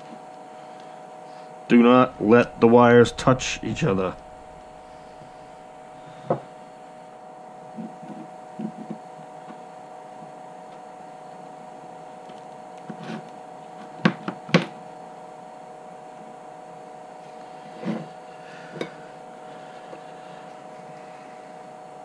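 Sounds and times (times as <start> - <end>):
steady hum: 0.0 - 11.2.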